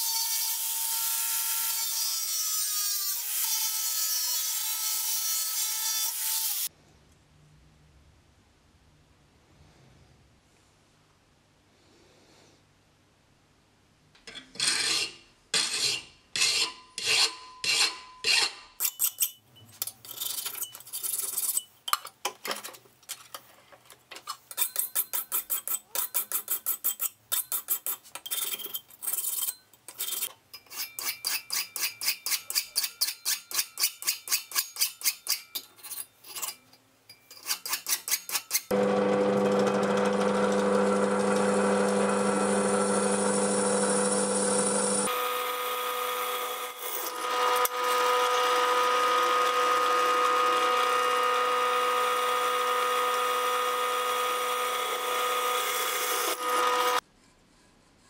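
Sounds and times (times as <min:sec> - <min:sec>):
file rasping on steel: 0:14.6 - 0:19.4, 0:24.6 - 0:36.6, 0:37.3 - 0:38.7
drill press drilling into steel: 0:38.7 - 0:45.3.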